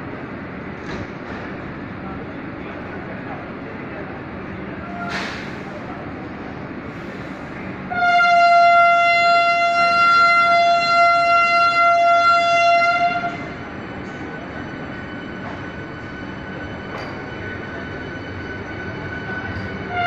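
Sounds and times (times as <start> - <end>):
train horn blast: 7.9 - 13.6.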